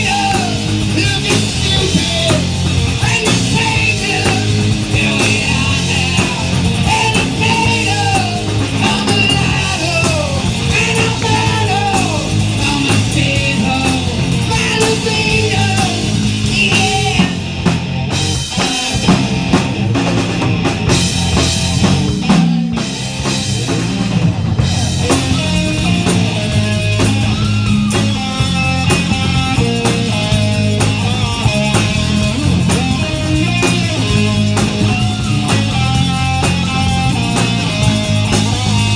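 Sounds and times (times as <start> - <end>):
man singing: 0.0 - 17.5
rock band playing: 0.0 - 38.9.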